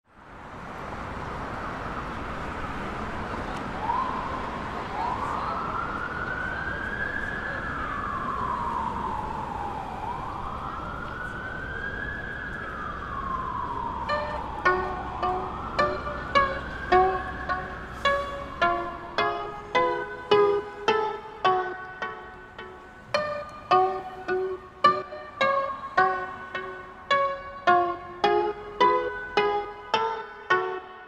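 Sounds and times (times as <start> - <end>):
street noise hiss: 0.1 - 31.0
siren wailing: 3.8 - 31.0
plucked string notes: 14.0 - 31.0.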